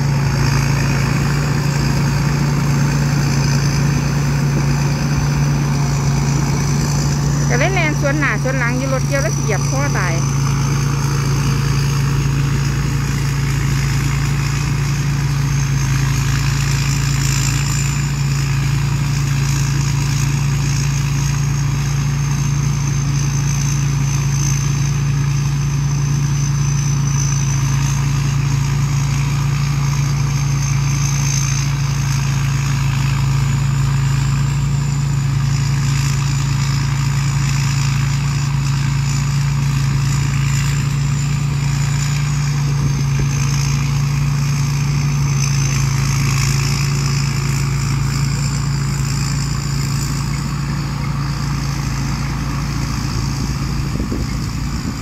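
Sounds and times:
combine harvester diesel engine: 0.0s - 55.0s
high whine wavering in pitch: 40.8s - 55.0s.

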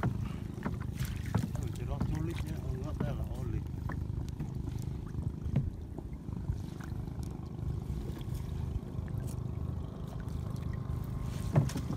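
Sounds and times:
wind rumbling on microphone: 0.0s - 11.9s.

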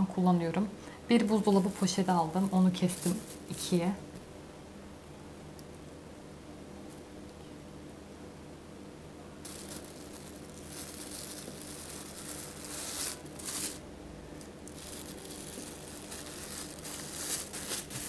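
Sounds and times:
plastic bag crinkling: 1.2s - 3.9s, 9.4s - 13.8s, 14.4s - 18.0s.

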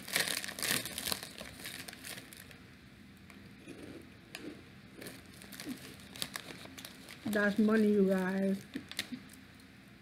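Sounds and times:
snack bag crinkling: 0.0s - 2.6s, 5.0s - 9.4s.

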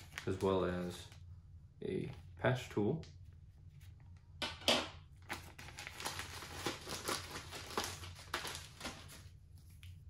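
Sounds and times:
plastic bag crinkling: 0.0s - 1.1s, 5.2s - 9.3s.

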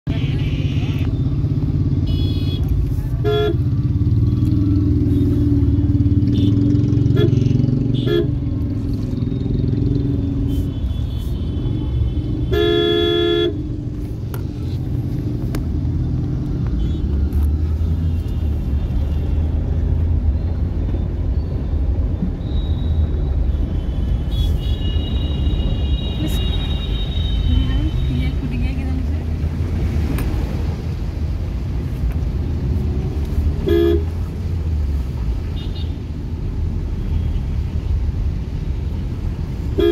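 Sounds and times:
car horns tooting: 10.5s - 13.6s, 33.6s - 34.1s
car driving through water: 29.0s - 31.9s.

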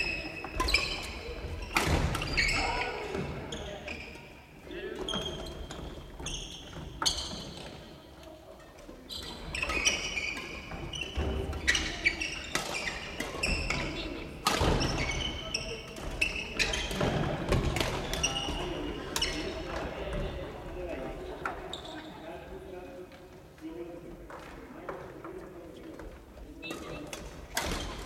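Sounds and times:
sneakers squeaking: 0.0s - 8.0s, 8.6s - 22.2s, 26.6s - 28.0s
rackets striking shuttlecocks: 1.7s - 2.4s, 26.7s - 28.0s.

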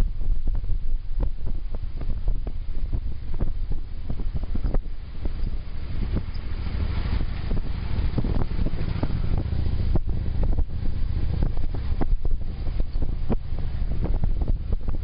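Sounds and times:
motorcycle engine rumble: 0.0s - 15.0s
wind buffeting microphone: 0.0s - 15.0s.

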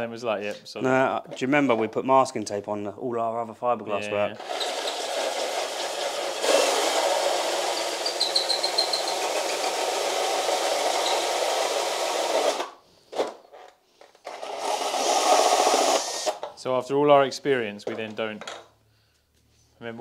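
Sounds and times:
drill hole saw grinding panel: 4.4s - 12.8s, 14.2s - 16.4s.

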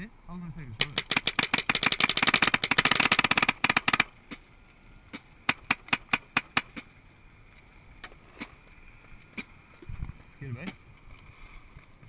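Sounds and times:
paintball marker firing: 0.8s - 4.4s, 5.1s - 6.9s.

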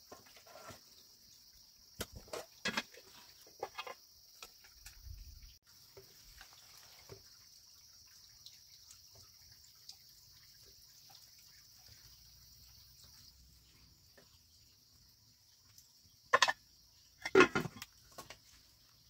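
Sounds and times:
water dripping: 4.2s - 19.0s.

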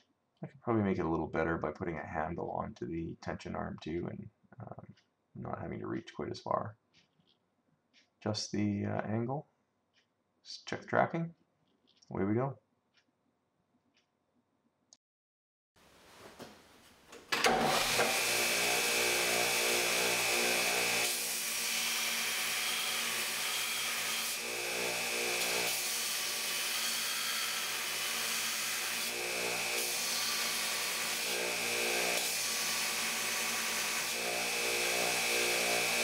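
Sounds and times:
belt grinder grinding steel: 17.4s - 36.0s.

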